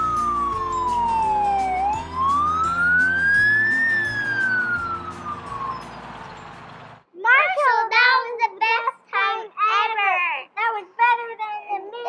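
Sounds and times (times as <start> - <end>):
background music: 0.0 - 6.9
fire engine siren wailing: 0.0 - 7.0.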